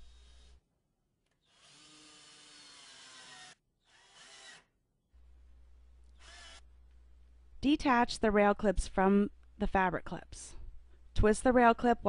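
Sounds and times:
power drill driving screws: 1.4 - 4.7, 6.2 - 6.6.

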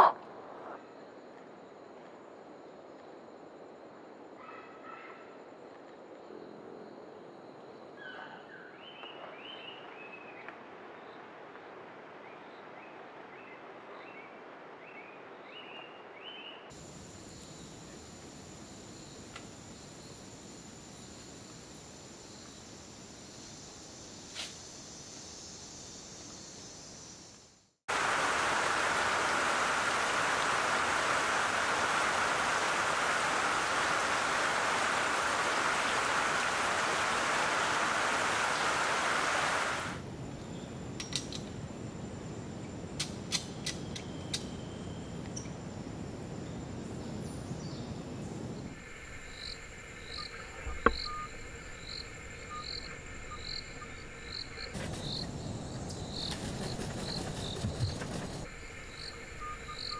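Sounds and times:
loud even hiss: 27.9 - 40.1
insect trilling: 48.8 - 59.9.

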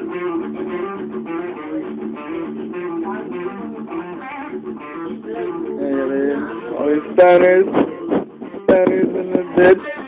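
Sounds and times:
guitar being picked: 0.0 - 10.0.

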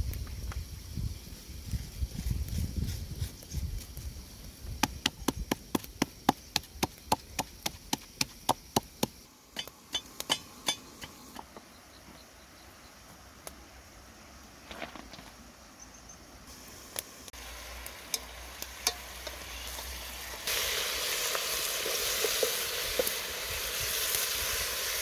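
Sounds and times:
wood fire crackling: 0.0 - 11.3, 16.5 - 25.0
pestle pounding in mortar: 4.8 - 9.2.

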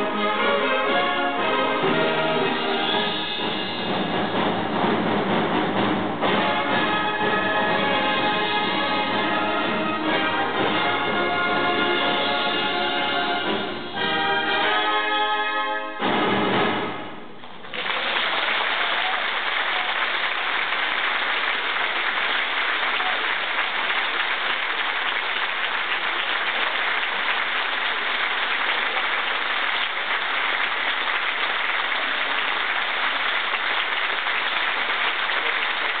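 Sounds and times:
audience applauding: 17.5 - 36.0.

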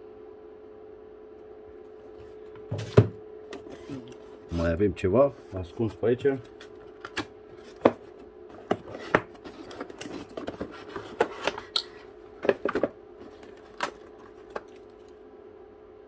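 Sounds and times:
faint steady hum: 0.0 - 16.0
cardboard taps clicks and scrapes: 6.5 - 11.8.

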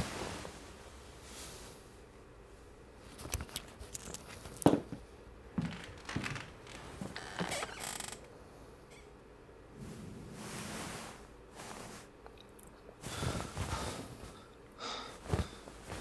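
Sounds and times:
clicks rustles and creaks: 5.6 - 8.3.

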